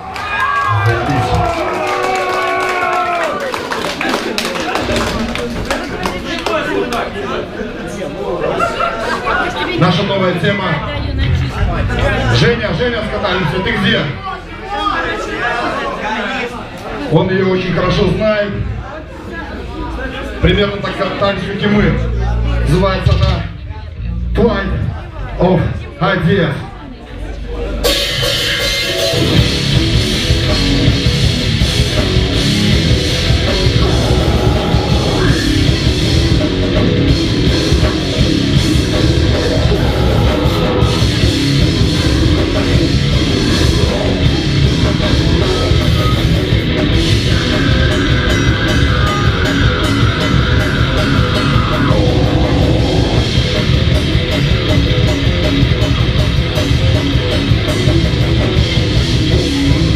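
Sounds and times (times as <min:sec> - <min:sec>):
distorted guitars: 0:27.7 - 0:59.9
fast drum kit: 0:27.8 - 0:59.9.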